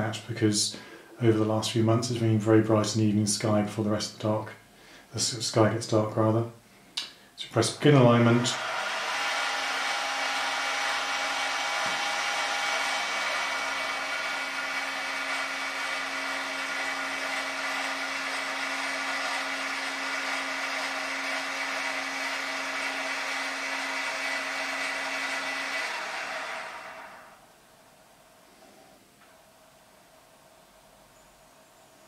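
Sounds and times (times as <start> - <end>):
motors whining: 8.3 - 27.5.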